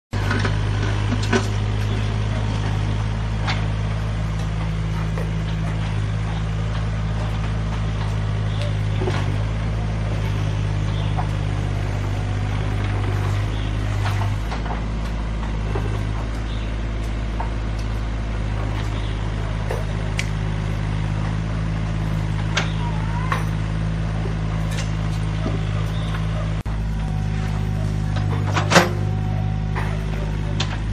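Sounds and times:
excavator diesel engine running: 0.1 - 30.9.

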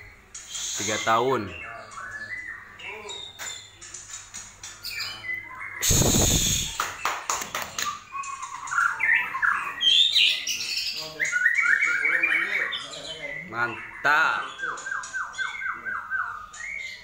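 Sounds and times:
bird singing whistled notes: 0.0 - 3.9, 4.8 - 17.0
loud rushing noise: 5.8 - 6.8.

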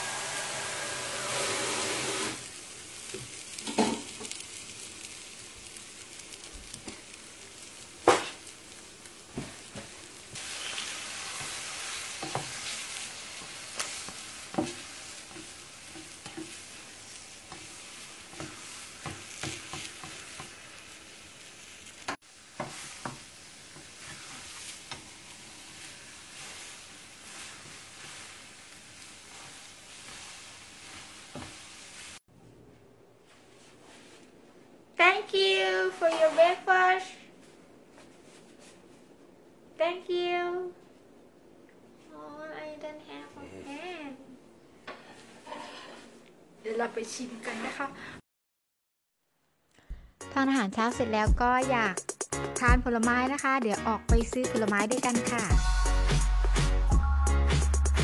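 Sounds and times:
eggs sizzling in a frying pan: 0.0 - 32.3
spatula scraping a pan: 10.3 - 32.2, 45.0 - 46.2, 47.4 - 47.9.

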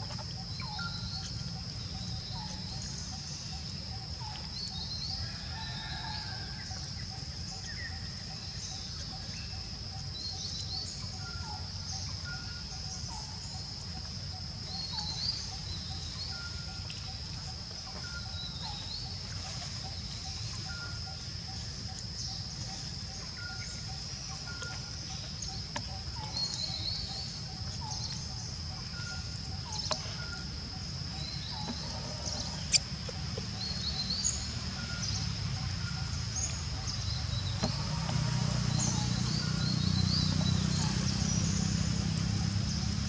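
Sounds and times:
birds chirping: 0.0 - 4.9.

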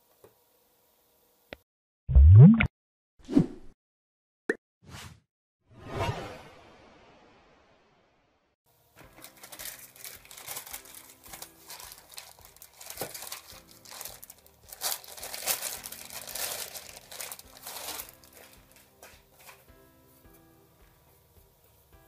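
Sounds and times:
plastic wrapping crinkling: 9.0 - 19.7.

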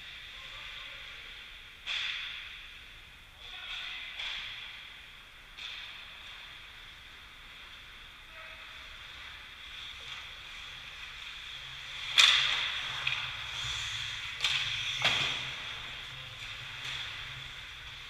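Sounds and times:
hockey stick hitting puck: 1.8 - 2.7, 5.5 - 6.5, 12.0 - 13.4.

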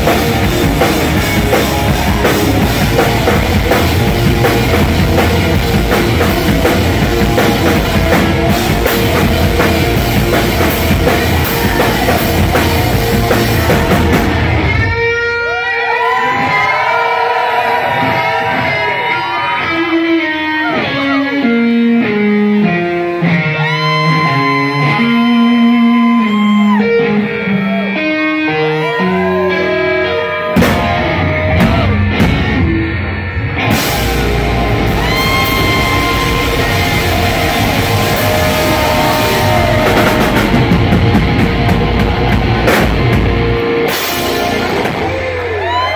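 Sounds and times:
live rock band playing: 0.0 - 45.9
electric guitar solo: 18.0 - 45.9.

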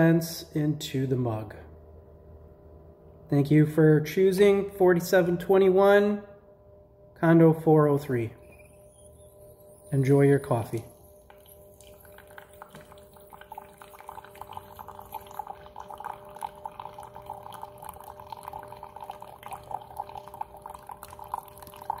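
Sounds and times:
steady hum: 0.0 - 22.0
coffee trickling into a mug: 8.4 - 22.0.

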